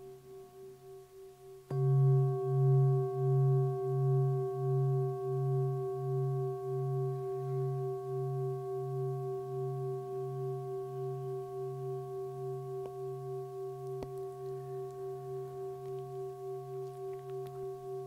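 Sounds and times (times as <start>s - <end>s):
singing bowl ringing: 0.0s - 18.0s.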